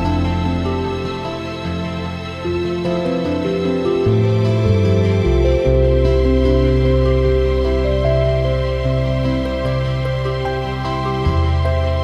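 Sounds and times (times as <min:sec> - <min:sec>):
instrumental music with held notes: 0:00.0 - 0:12.0.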